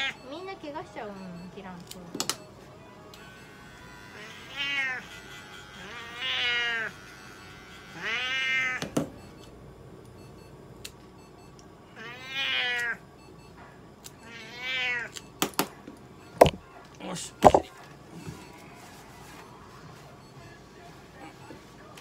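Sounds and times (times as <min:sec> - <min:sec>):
cat meowing: 0:08.0 - 0:08.8, 0:12.0 - 0:13.0, 0:14.2 - 0:15.1.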